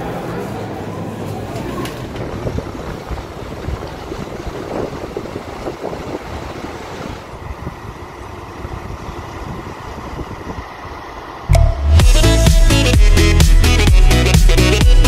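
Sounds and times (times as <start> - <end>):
wind buffeting microphone: 2.0 - 11.0.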